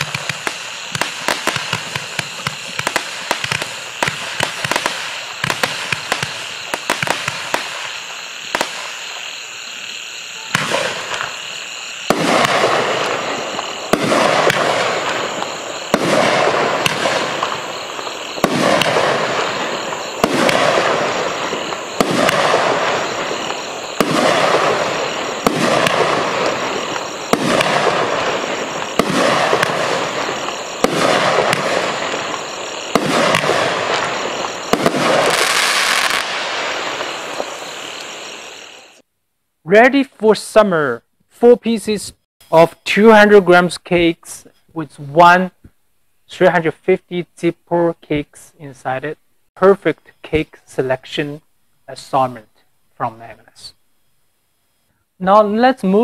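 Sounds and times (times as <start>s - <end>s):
firework pops and clicks: 0.0s - 7.8s
firework shots with noisy trail: 0.0s - 39.0s.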